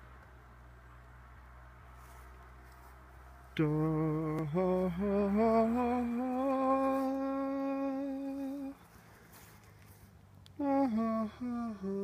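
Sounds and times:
person humming: 3.6s - 8.9s, 10.5s - 12.0s.

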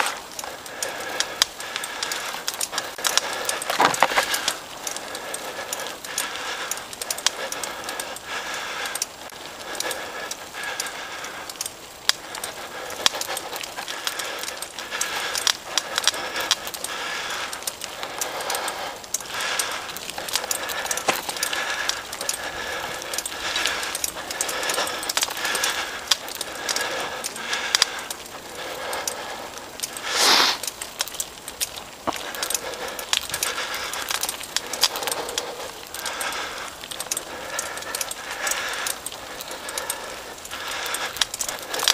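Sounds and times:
mountain bike rattling on rocky trail: 0.0s - 41.9s
bike jolt: 3.1s - 5.0s.

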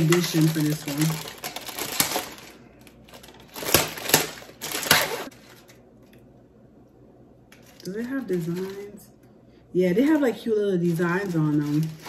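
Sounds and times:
plastic wrapper crinkling: 0.0s - 6.2s, 7.5s - 9.0s, 10.0s - 12.0s.

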